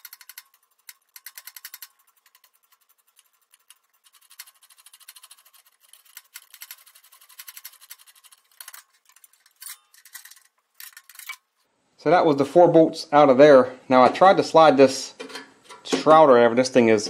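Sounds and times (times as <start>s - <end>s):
socket ratchet clicking: 0.0s - 2.9s.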